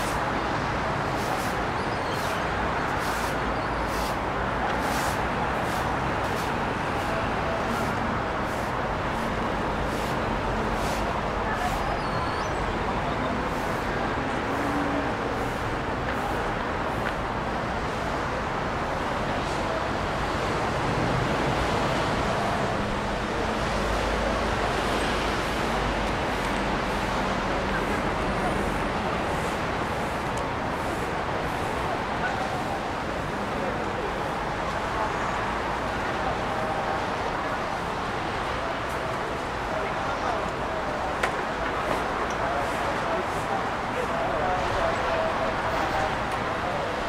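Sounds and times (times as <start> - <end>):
city traffic noise: 0.0 - 47.0.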